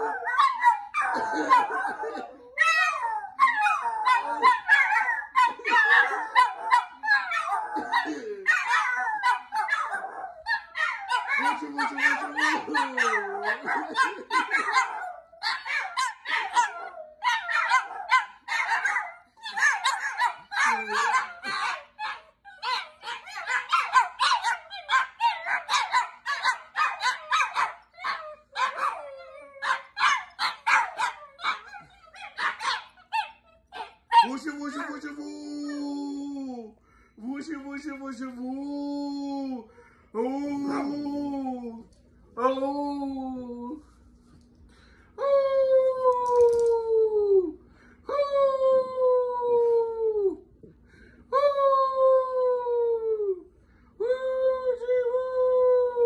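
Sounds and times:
dogs howling: 0:00.0 - 0:36.2.

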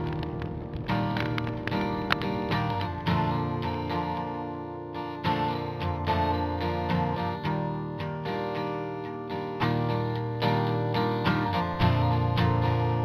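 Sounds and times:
low bass notes: 0:00.0 - 0:03.6
picked guitar music: 0:00.0 - 0:13.0.

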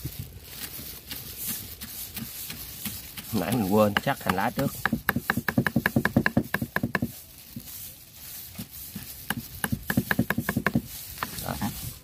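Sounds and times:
cleaver chopping on wooden block: 0:02.2 - 0:07.1, 0:09.2 - 0:11.4.

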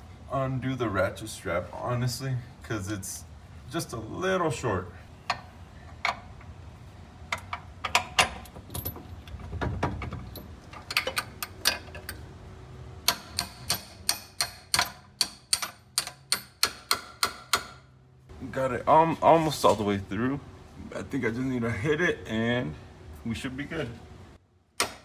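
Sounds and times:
metal ratchet clicking: 0:13.0 - 0:17.5.

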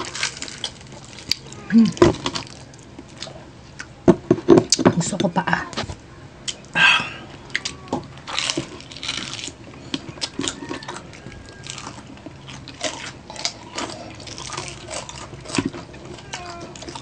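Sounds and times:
crunchy bites and chewing: 0:00.0 - 0:04.0, 0:07.5 - 0:17.0.

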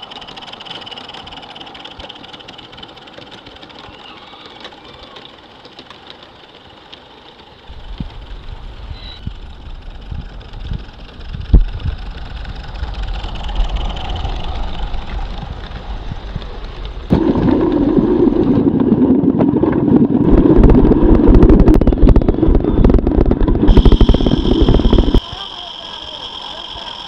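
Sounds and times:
wheels clicking over track: 0:00.0 - 0:18.1.

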